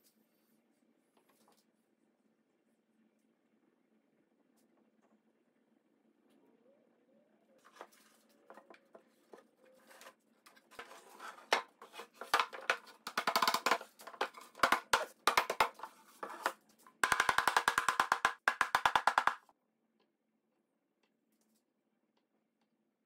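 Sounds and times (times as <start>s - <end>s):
wooden panels knocking: 10.6s - 19.5s.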